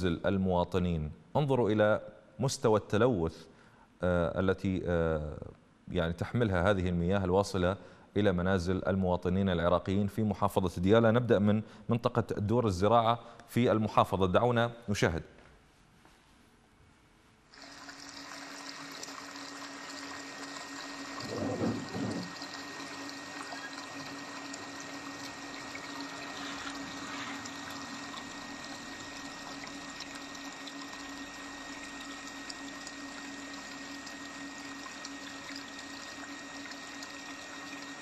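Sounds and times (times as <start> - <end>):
tap water pouring into bowl: 17.6 - 38.0
steady low hum: 20.5 - 37.8
brief low thud: 21.2 - 22.3.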